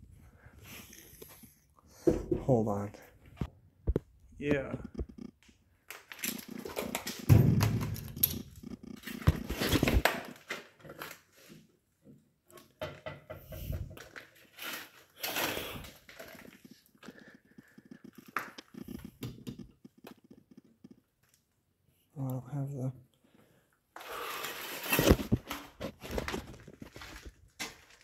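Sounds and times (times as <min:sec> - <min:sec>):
rustling and crunching handling: 0:24.2 - 0:28.0.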